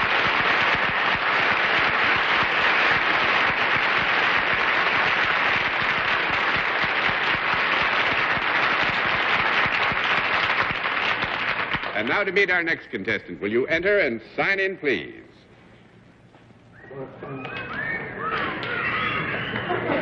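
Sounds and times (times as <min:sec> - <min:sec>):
audience applauding: 0:00.0 - 0:12.4, 0:17.3 - 0:20.0.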